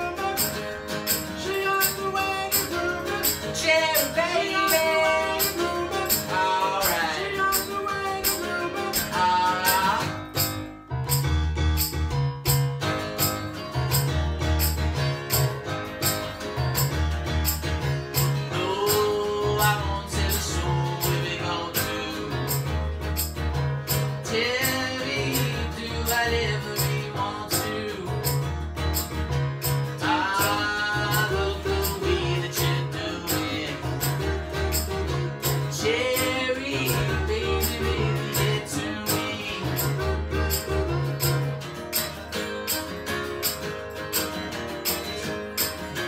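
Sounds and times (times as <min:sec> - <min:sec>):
person singing: 0:00.0 - 0:10.5, 0:18.5 - 0:22.8, 0:24.2 - 0:28.5, 0:30.0 - 0:41.5
acoustic guitar strumming: 0:00.0 - 0:46.0
keyboard bass notes: 0:00.0 - 0:46.0.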